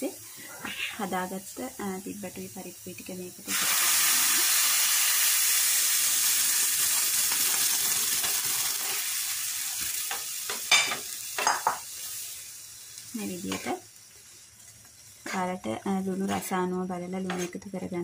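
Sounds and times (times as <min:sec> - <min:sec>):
food sizzling in oil: 0:00.0 - 0:18.0
metal spoon scraping pan: 0:17.2 - 0:17.6.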